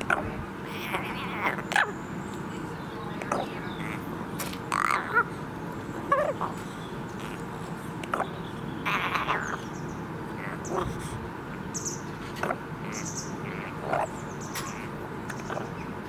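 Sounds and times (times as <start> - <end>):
rook calling: 0.0 - 16.0.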